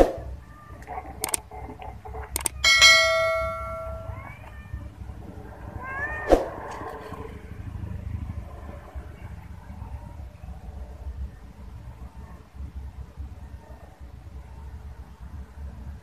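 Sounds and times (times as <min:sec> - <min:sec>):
ringing metal clang: 0:02.6 - 0:04.3
cat meowing: 0:03.3 - 0:04.9, 0:05.7 - 0:06.6.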